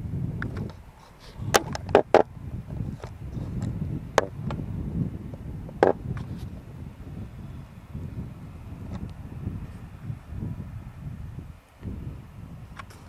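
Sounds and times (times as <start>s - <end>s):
wind buffeting microphone: 0.0s - 13.0s
sharp clicks and knocks: 1.5s - 2.3s, 5.8s - 6.3s.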